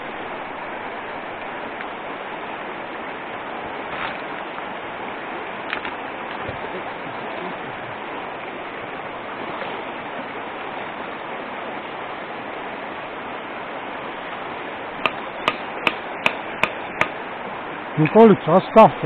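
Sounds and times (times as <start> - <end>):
stream rushing over stones: 0.0 - 19.0
hammer striking rock: 15.0 - 17.2.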